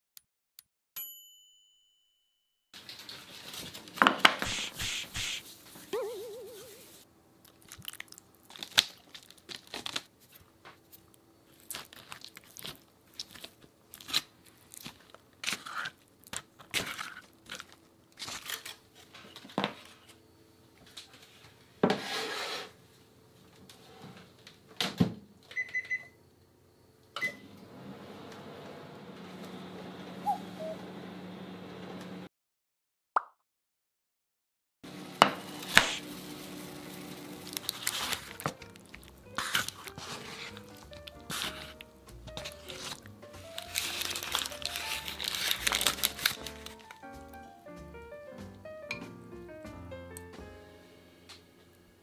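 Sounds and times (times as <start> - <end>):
parchment paper crinkling: 2.8 - 19.2, 35.6 - 47.5
microwave oven beeps: 25.5 - 26.2, 27.1 - 32.2
microwave oven humming: 25.5 - 32.3, 34.9 - 38.5.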